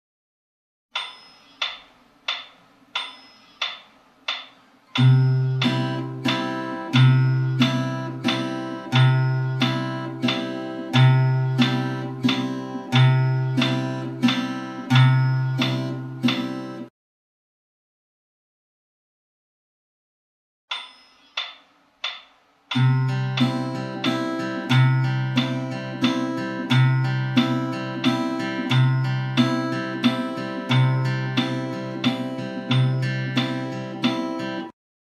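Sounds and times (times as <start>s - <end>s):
count-in clicks: 1.0s - 16.9s, 20.7s - 34.7s
fingerpicked acoustic guitar: 5.0s - 16.9s, 22.8s - 34.7s.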